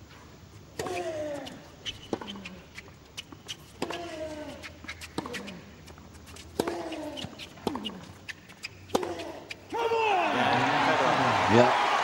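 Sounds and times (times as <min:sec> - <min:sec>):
racket hitting tennis ball: 0:00.8 - 0:10.0
shoe squeaks: 0:00.8 - 0:10.0.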